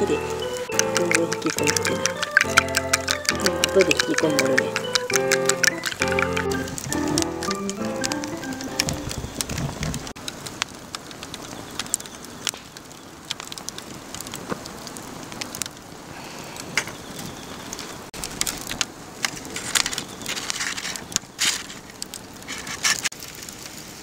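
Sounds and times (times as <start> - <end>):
log fire crackling and popping: 0.0 - 24.0
aluminium foil crinkling: 17.2 - 23.8.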